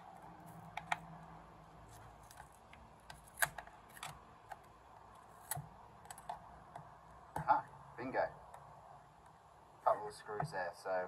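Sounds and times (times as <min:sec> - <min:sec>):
pry tools clicking on plastic: 0:02.2 - 0:04.7.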